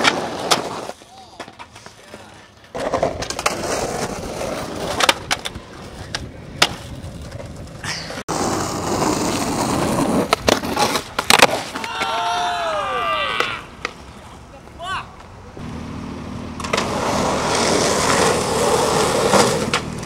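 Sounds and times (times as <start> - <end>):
skateboard popping and landing: 0.0 - 12.4, 16.6 - 20.0
skateboard wheels rolling on asphalt: 0.0 - 20.0.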